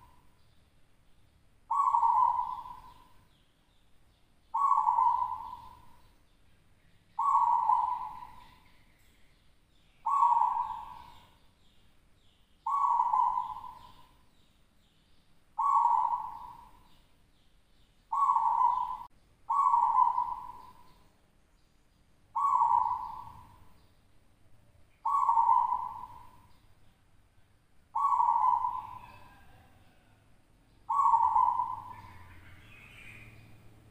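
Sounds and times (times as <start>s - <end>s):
dove cooing: 1.7s - 3.2s, 4.5s - 6.0s, 7.2s - 8.7s, 10.0s - 11.3s, 12.6s - 14.2s, 15.6s - 17.0s, 18.1s - 21.0s, 22.4s - 23.7s, 25.0s - 26.5s, 27.9s - 30.2s, 30.9s - 33.5s.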